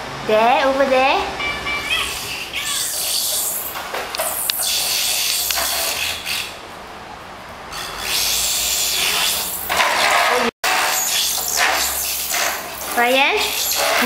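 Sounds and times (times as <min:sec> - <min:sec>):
plastic wheels rolling on tiles: 0:09.0 - 0:14.0.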